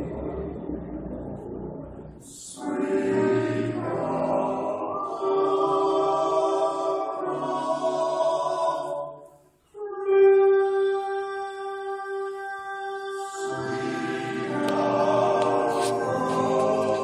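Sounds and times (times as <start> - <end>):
men's chorus singing: 2.5 - 9.3, 13.2 - 17.0.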